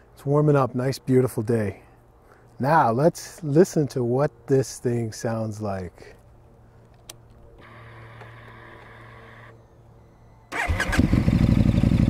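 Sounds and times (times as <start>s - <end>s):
fuel pump whirring: 7.6s - 9.6s.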